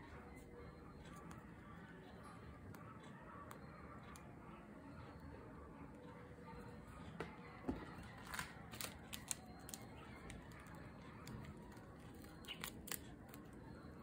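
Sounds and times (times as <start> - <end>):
plastic wrapping clicks and crinkles: 7.9 - 13.9.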